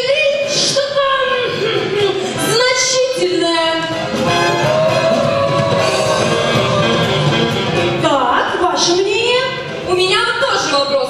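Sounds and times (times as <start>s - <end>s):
musical accompaniment: 3.7s - 9.9s
person singing long notes: 4.2s - 7.9s.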